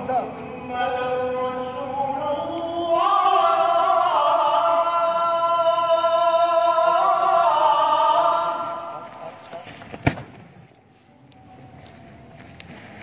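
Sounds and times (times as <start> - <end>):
man chanting call to prayer: 0.0 - 9.8.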